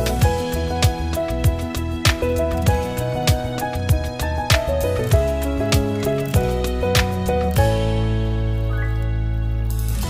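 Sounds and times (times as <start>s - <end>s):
held melodic notes: 2.4s - 9.7s.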